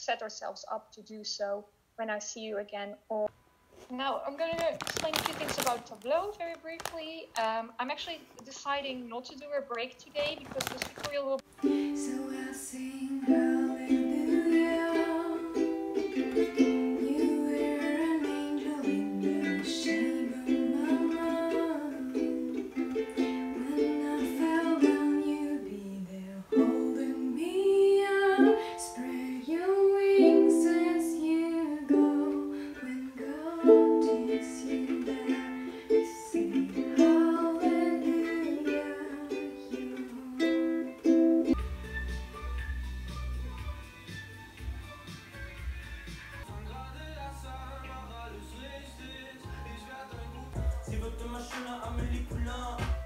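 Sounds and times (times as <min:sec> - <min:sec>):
ukulele playing: 0:11.4 - 0:45.2.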